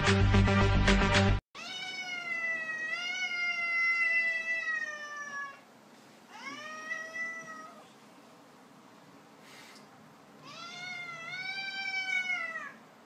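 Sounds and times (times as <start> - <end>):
cat meowing: 1.6 - 5.6, 6.3 - 7.8, 10.4 - 12.8.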